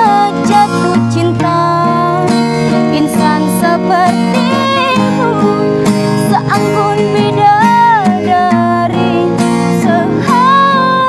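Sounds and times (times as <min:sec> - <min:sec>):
strummed acoustic guitar: 0:00.0 - 0:11.0
woman singing a ballad: 0:00.0 - 0:11.0.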